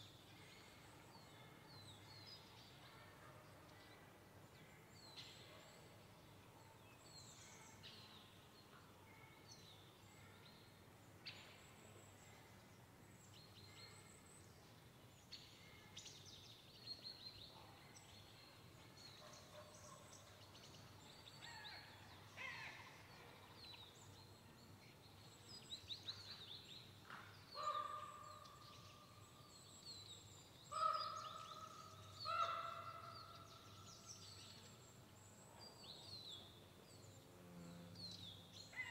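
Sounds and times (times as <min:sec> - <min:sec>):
quiet forest ambience: 0:00.0 - 0:38.9
crows calling: 0:30.7 - 0:31.7, 0:32.3 - 0:33.1.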